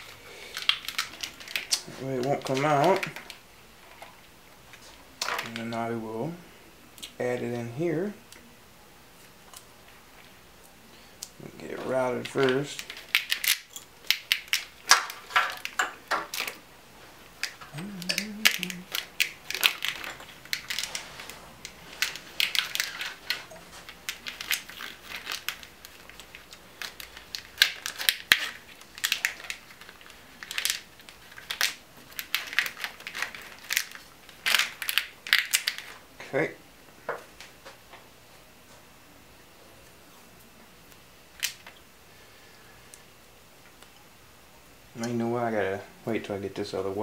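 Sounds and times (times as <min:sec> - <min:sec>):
plastic tubing crackling and rustling: 0:00.0 - 0:05.8, 0:11.4 - 0:36.1.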